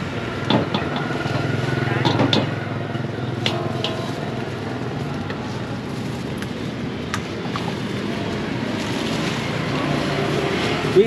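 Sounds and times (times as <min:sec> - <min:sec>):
motorbike and traffic drone: 0:00.0 - 0:11.0
bowls and utensils clinking: 0:00.6 - 0:05.2.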